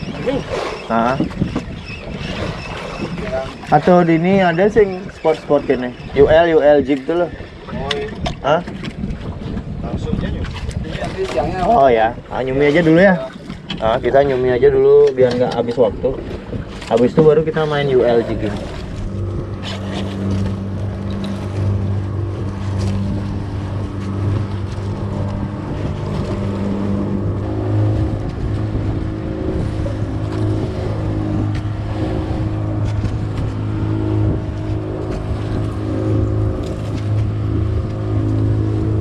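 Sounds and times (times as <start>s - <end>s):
boat engine running: 0.0s - 39.0s.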